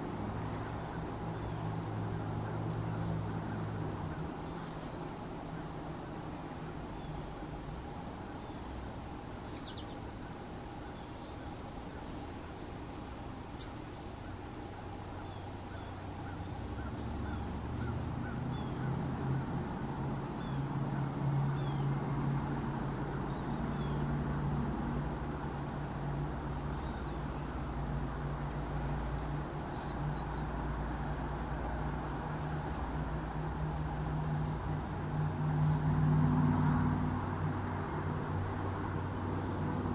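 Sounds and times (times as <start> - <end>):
insect trill: 0.0 - 39.9
bird chirps: 4.2 - 5.0, 9.5 - 10.1, 10.7 - 11.8, 12.9 - 14.3.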